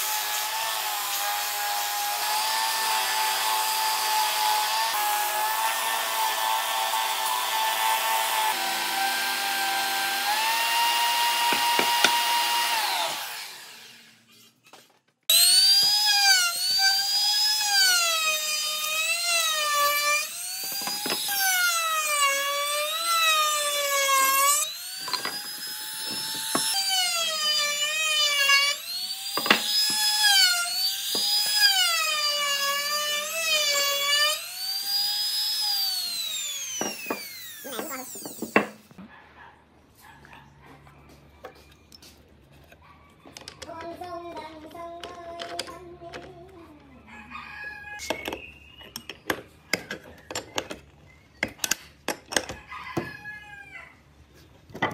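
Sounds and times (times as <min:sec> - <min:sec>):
router whining cutting wood: 0:00.0 - 0:14.3, 0:15.3 - 0:38.8
belt sander motor hum: 0:06.6 - 0:14.2, 0:15.3 - 0:38.6.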